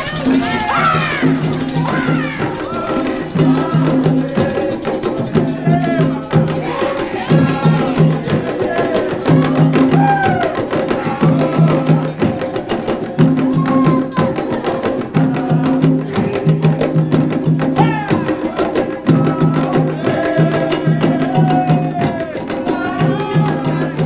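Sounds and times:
fast hand percussion: 0.0 - 24.0
voices singing: 0.0 - 24.0.

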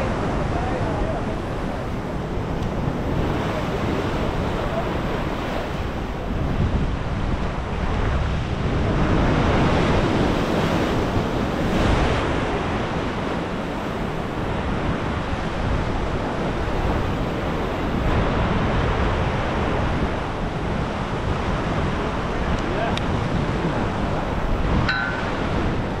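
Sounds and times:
choppy sea water breaking: 0.0 - 26.0
wind on microphone: 0.0 - 26.0.

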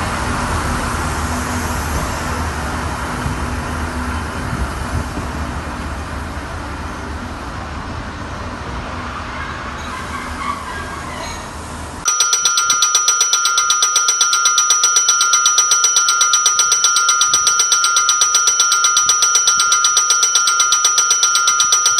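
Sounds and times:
railway platform noise: 0.0 - 12.0
electric bell ringing: 12.1 - 21.9.

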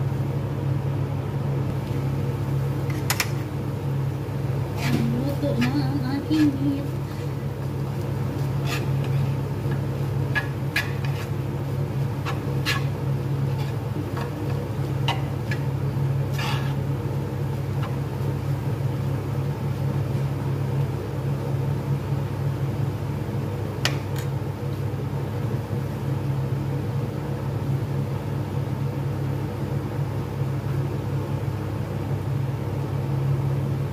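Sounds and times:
low mechanical hum: 0.0 - 33.9
spatula scraping metal pan: 4.8 - 7.4, 8.5 - 9.4, 10.3 - 11.4, 12.2 - 15.7, 16.3 - 16.8.

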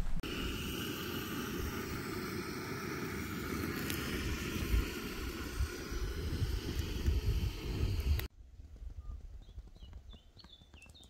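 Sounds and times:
gas stove hissing roar: 0.1 - 8.3.

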